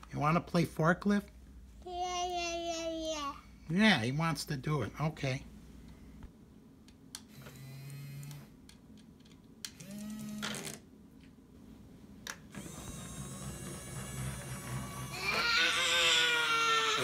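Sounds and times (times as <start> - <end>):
toy electric motors whirring: 9.7 - 10.8, 12.5 - 17.0.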